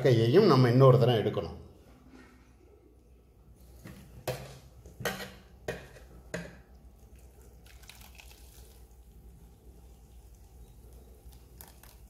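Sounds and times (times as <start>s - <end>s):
hands handling wet pulp: 6.8s - 12.0s.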